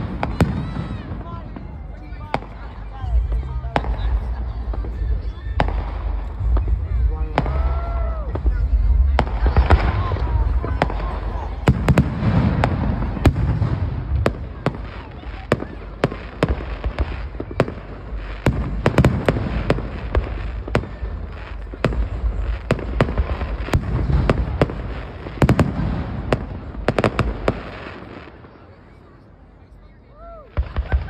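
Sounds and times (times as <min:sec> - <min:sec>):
fireworks bangs: 0:00.0 - 0:29.5, 0:30.2 - 0:31.0
low rumble: 0:01.2 - 0:14.9.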